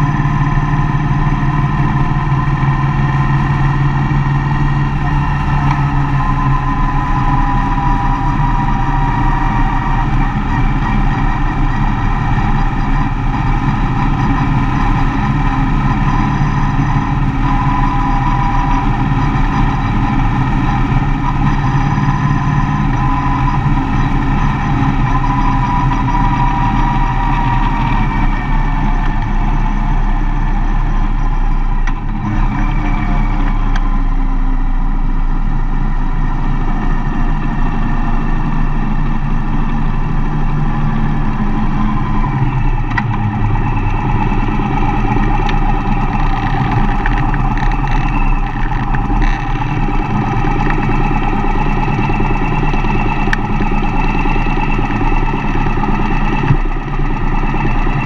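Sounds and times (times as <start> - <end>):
van engine running: 0.0 - 58.0.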